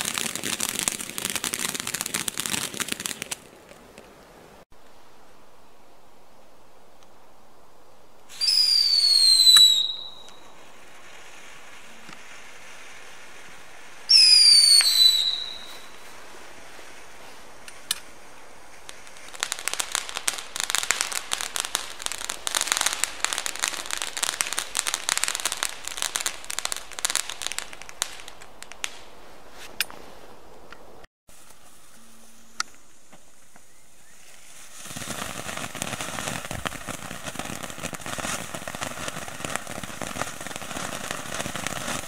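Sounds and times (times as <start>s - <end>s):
firework crackling: 0.0s - 5.4s, 6.3s - 30.3s, 31.3s - 42.0s
firework whistles falling in pitch: 8.3s - 10.6s, 14.0s - 16.1s.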